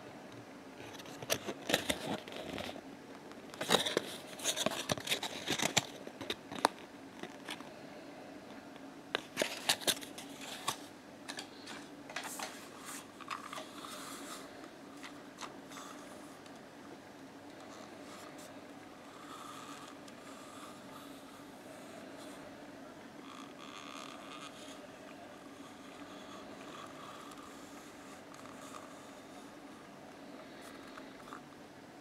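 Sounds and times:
faint steady hum: 0:00.0 - 0:32.0
card box rustling and clicking: 0:03.6 - 0:07.6.

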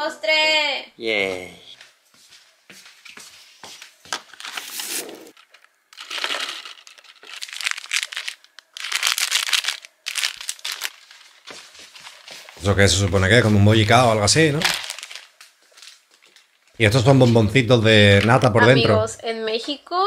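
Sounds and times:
plastic bag crinkling: 0:04.2 - 0:16.8.

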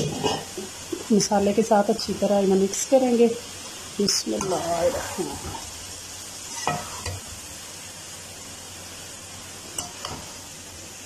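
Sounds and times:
spoon scraping a metal pan: 0:00.0 - 0:00.7, 0:06.4 - 0:07.2
vegetables sizzling in a pan: 0:00.0 - 0:11.0.

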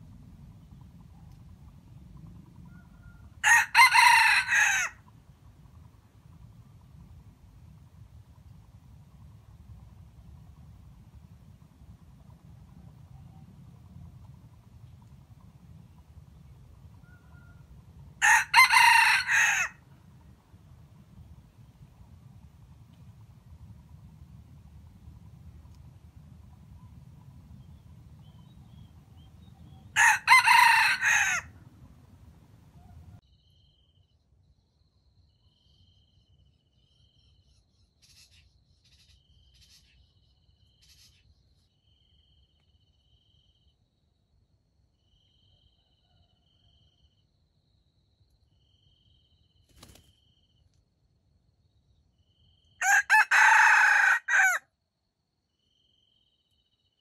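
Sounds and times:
rooster crowing: 0:02.6 - 0:05.0, 0:17.0 - 0:19.9, 0:29.9 - 0:31.6, 0:52.8 - 0:54.7.

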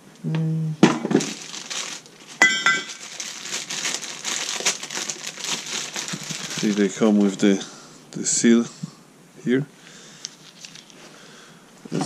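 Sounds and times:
plastic bag crinkling: 0:01.0 - 0:07.6, 0:10.2 - 0:11.2.

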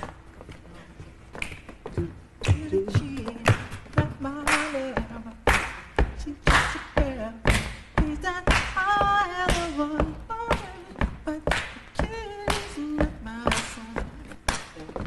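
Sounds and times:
man singing a cappella: 0:02.0 - 0:05.5, 0:06.2 - 0:14.4.

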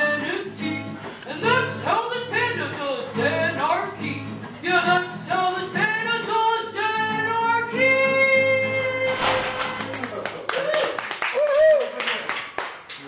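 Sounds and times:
people clapping: 0:09.2 - 0:13.0.

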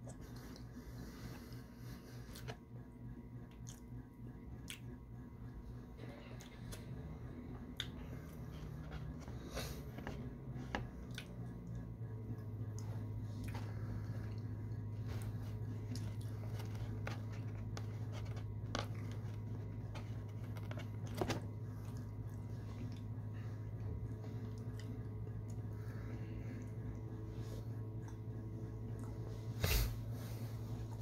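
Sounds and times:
steady low hum: 0:00.0 - 0:31.0
person chewing food: 0:06.3 - 0:27.1.

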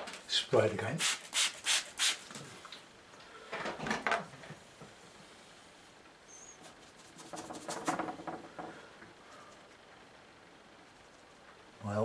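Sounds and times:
spray bottle spraying: 0:01.0 - 0:02.3
hand rubbing paint on board: 0:06.6 - 0:08.2.

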